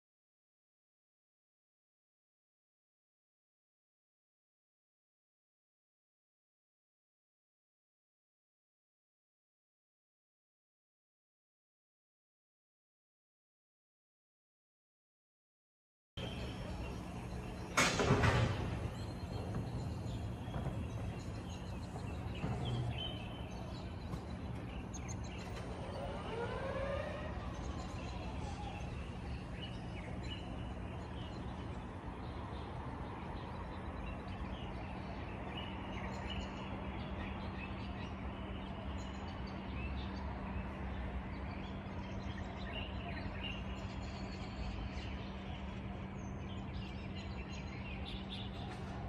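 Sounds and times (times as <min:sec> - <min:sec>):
small birds chirping: 0:16.2 - 0:26.5, 0:27.1 - 0:49.0
distant traffic hum: 0:16.2 - 0:49.0
low drone: 0:16.2 - 0:49.0
rising and falling tone: 0:25.5 - 0:29.4.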